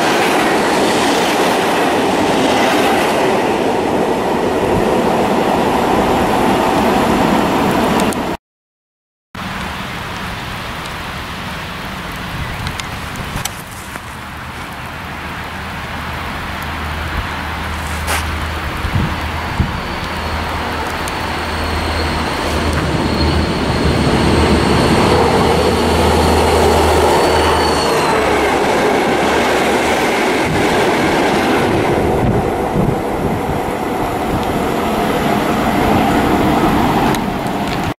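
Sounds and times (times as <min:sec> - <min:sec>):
locomotives passing: 0:00.0 - 0:08.4, 0:09.4 - 0:38.0
wheels rumbling on rails: 0:09.4 - 0:38.0
high whine: 0:17.5 - 0:37.9.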